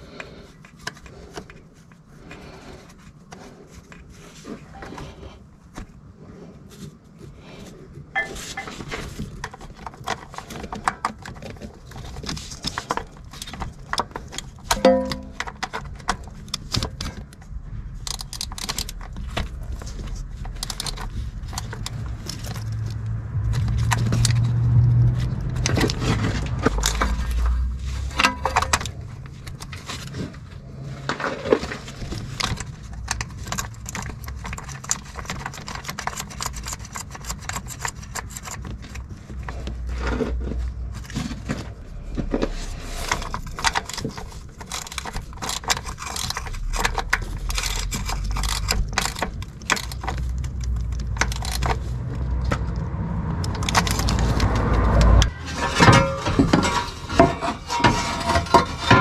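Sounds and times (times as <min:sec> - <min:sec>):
metal tools clinking and scraping: 0:08.2 - 0:09.0, 0:14.6 - 0:15.9, 0:25.8 - 0:29.3, 0:55.1 - 0:59.0
low hum: 0:14.7 - 0:15.6, 0:40.4 - 0:45.2.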